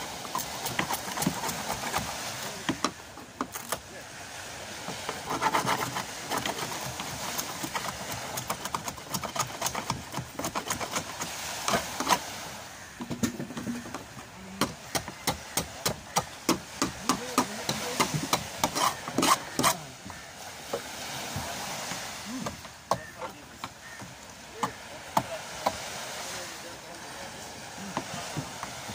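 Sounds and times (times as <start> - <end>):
tools chipping fibreglass: 0.4 - 2.1, 5.2 - 12.2.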